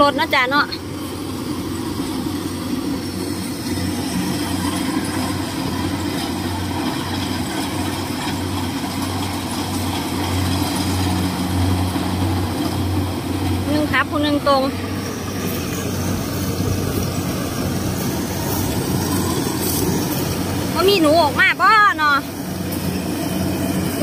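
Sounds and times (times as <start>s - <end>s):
combine harvester engine droning: 0.0s - 24.0s.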